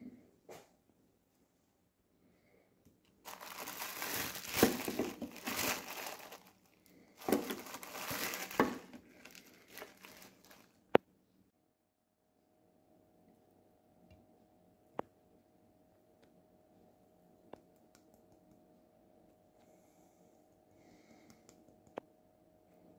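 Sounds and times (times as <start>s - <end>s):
plastic bag crinkling: 3.2s - 10.8s.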